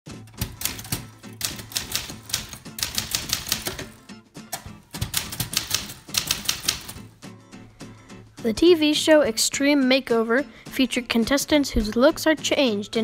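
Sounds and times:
manual typewriter typing: 0:00.2 - 0:07.1.

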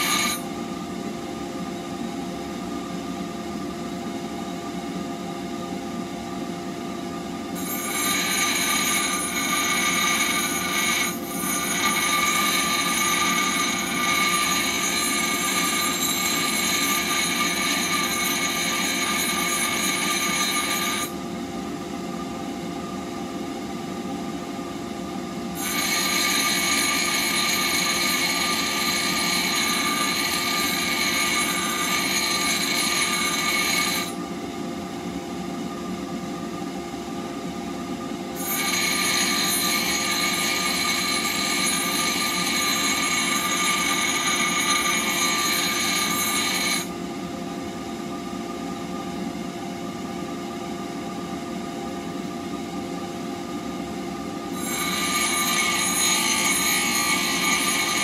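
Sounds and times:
steel blade grinding hiss: 0:00.0 - 0:00.4, 0:07.6 - 0:21.1, 0:25.6 - 0:34.2, 0:38.4 - 0:46.9, 0:54.6 - 0:58.0
bench grinder motor hum: 0:25.6 - 0:34.2.

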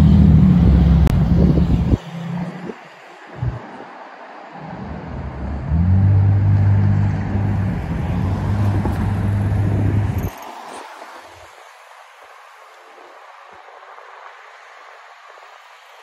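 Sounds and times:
cars driving past: 0:00.0 - 0:12.7.

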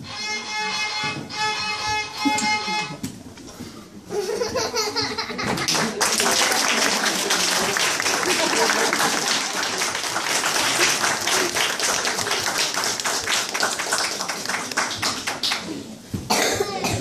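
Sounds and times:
audience applauding: 0:05.6 - 0:15.8.

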